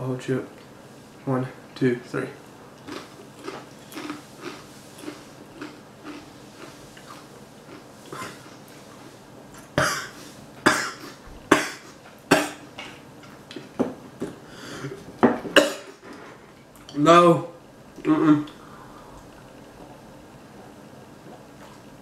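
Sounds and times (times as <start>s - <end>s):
person crunching chips: 2.8s - 8.5s
man coughing: 9.8s - 12.6s, 15.6s - 16.0s.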